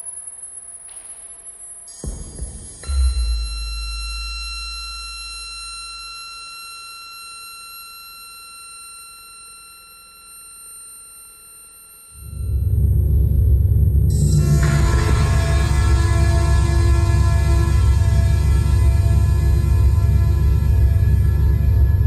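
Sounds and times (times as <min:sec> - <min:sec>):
high-pitched whining tones: 0:00.0 - 0:22.0
deep bass tone: 0:12.3 - 0:22.0
low droning rumble: 0:12.4 - 0:22.0.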